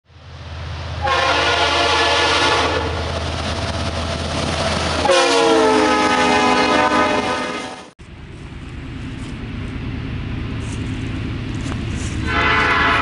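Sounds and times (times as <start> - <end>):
locomotive air horn blasts: 1.0 - 3.1, 5.0 - 7.9, 12.0 - 13.0
low engine rumble: 8.0 - 13.0.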